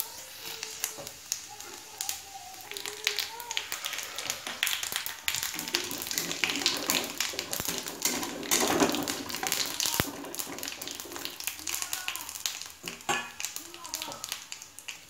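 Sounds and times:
seeds crackling in hot oil: 0.0s - 15.0s
metal spatula knocking pan: 5.5s - 12.2s, 12.8s - 14.3s.

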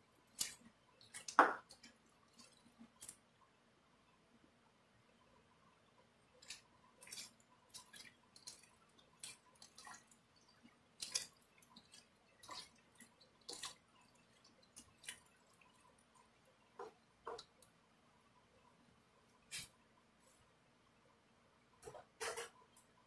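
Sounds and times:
hands squelching meat in marinade: 0.2s - 3.2s, 6.4s - 16.8s.

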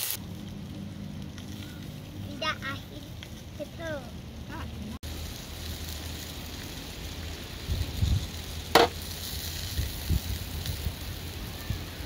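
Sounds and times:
steak sizzling: 0.0s - 12.0s.

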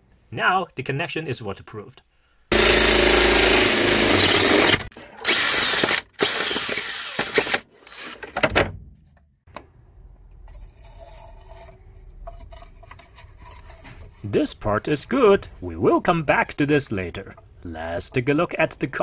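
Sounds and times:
drill boring through wood: 2.5s - 8.2s.

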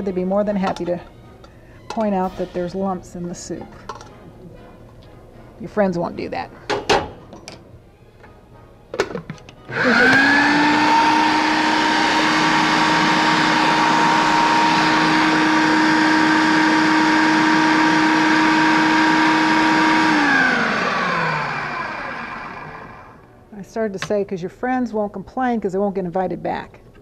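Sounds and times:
food processor motor whining: 9.7s - 23.3s.

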